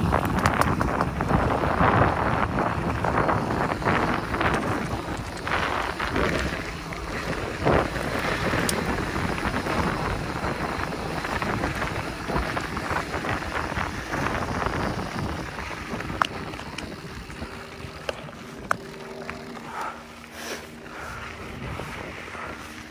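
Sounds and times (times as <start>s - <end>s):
bike tyres on dirt trail: 0.0s - 22.9s
wind buffeting microphone: 0.0s - 22.9s
sharp clicks: 0.1s - 1.2s.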